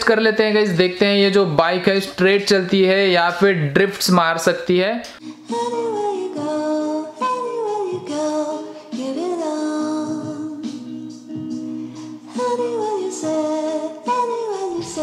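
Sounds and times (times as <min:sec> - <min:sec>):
background music with singing: 0:05.1 - 0:15.0.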